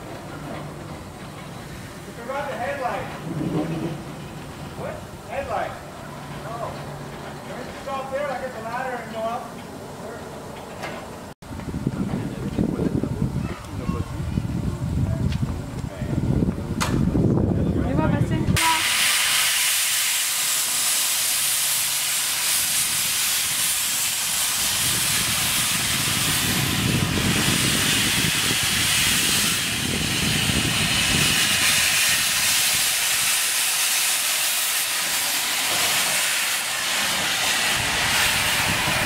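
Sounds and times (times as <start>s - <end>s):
low rumble: 2.8s - 7.4s
steam hissing: 18.5s - 39.0s.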